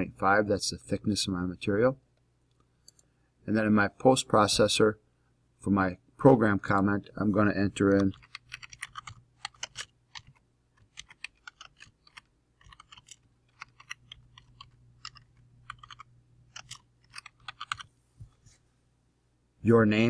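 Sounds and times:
faint low hum: 0.0s - 20.0s
keyboard typing: 7.8s - 17.9s.

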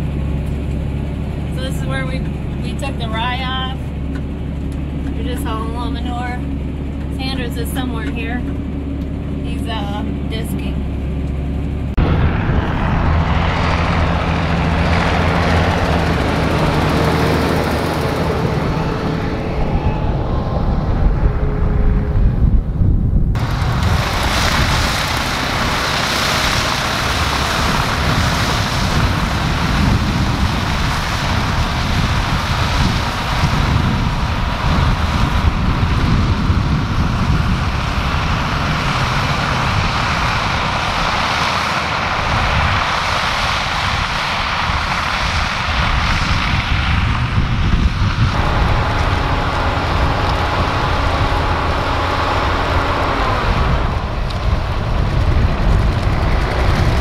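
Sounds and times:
high-pitched engine whine: 0.0s - 57.0s
tractor diesel engine running: 0.0s - 57.0s
wind buffeting microphone: 0.0s - 57.0s.

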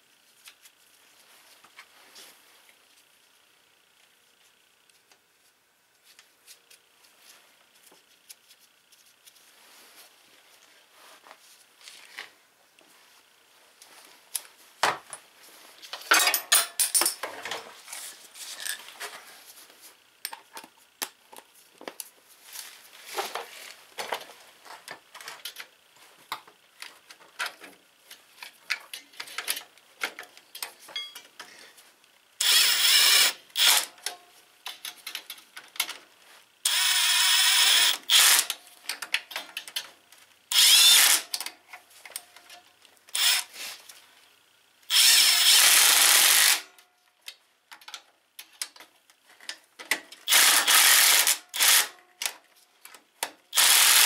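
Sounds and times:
metal tools clinking and rattling: 16.0s - 17.6s, 18.5s - 18.9s, 30.9s - 31.3s
cordless drill running: 32.4s - 33.9s, 36.7s - 38.5s, 40.5s - 41.3s, 43.1s - 43.5s, 44.9s - 46.7s, 50.3s - 51.9s, 53.5s - 54.0s.

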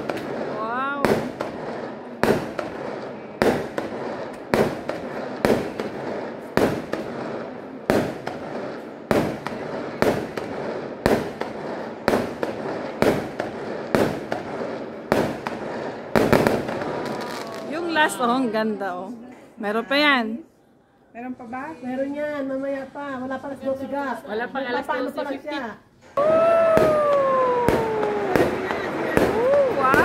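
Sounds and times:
fireworks bangs: 0.0s - 18.9s, 26.2s - 30.0s
fireworks crackling: 0.0s - 20.4s, 26.0s - 30.0s.

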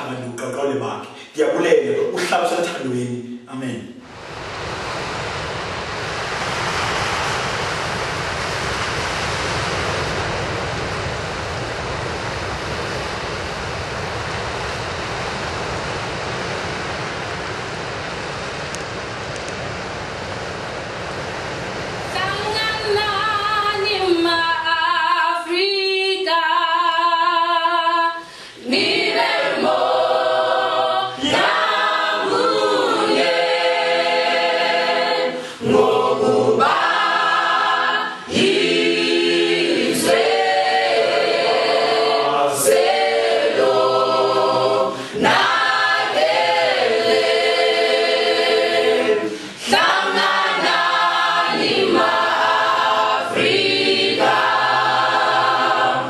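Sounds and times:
mixed choir singing a cappella: 22.1s - 56.0s.

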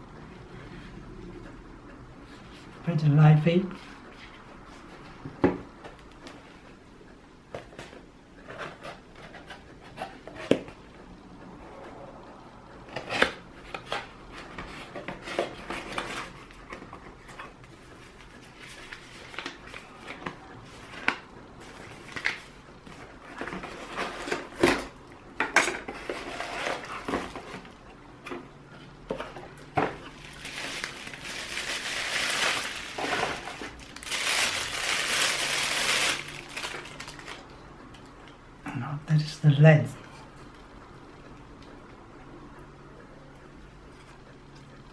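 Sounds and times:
paper and cardboard rustling: 12.9s - 37.5s
plastic wrap crinkling: 29.8s - 37.6s.

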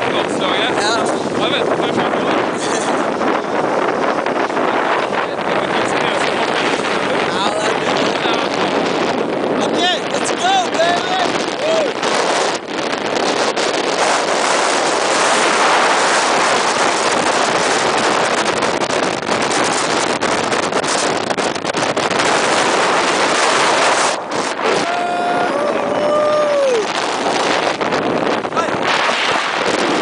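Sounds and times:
wind on microphone: 0.0s - 30.0s
person calling out: 10.3s - 11.9s, 24.8s - 26.9s.

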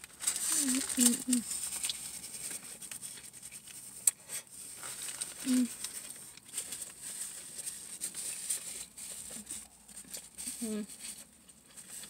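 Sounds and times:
paper wrapper crinkling: 0.0s - 12.0s
person humming: 0.5s - 1.4s, 5.4s - 5.7s.

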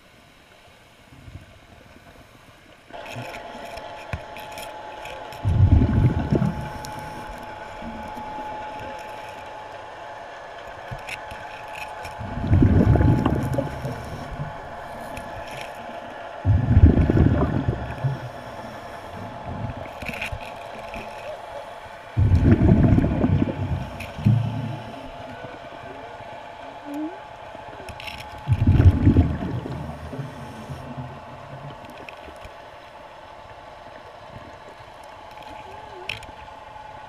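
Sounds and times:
underwater air bubbling: 4.2s - 33.5s.

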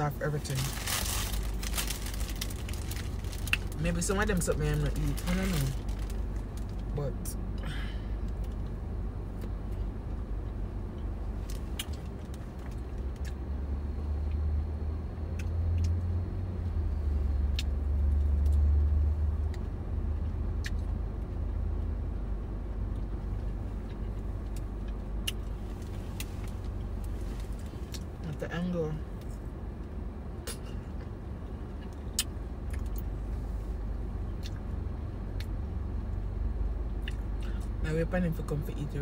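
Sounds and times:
car cabin rumble: 0.0s - 14.0s.

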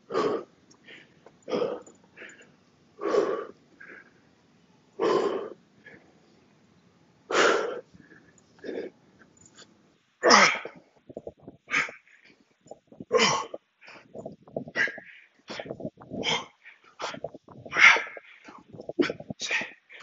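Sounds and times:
man breathing heavily: 0.0s - 4.2s, 5.0s - 6.2s, 10.4s - 20.0s.

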